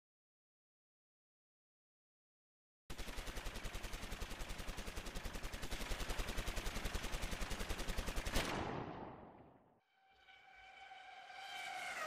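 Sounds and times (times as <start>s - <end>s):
machine-gun fire: 2.9s - 9.6s.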